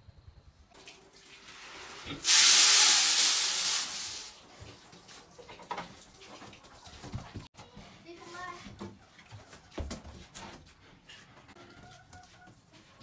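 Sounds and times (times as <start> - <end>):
powdered feed pouring into metal hopper: 1.4 - 4.3.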